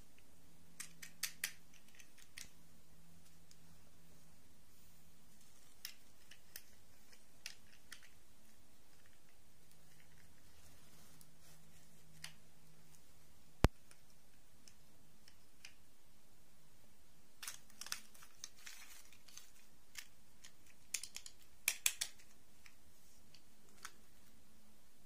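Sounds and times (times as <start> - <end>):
plastic dolls clicking and tapping: 0.7 - 2.6, 5.7 - 8.2, 17.4 - 24.0.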